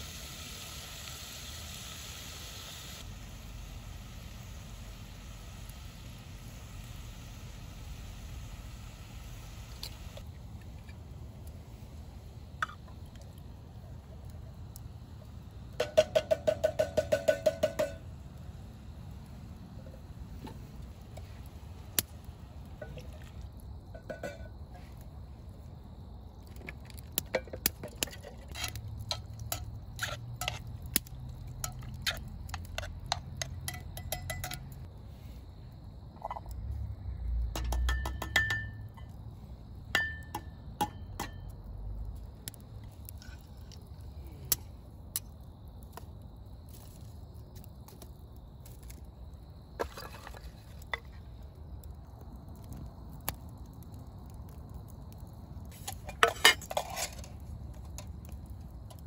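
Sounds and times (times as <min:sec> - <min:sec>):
wood fire crackling and popping: 0:00.0 - 0:35.0, 0:36.3 - 0:59.0
metal pot clinking: 0:24.0 - 0:24.5, 0:31.6 - 0:34.7, 0:37.6 - 0:38.8, 0:40.0 - 0:41.4.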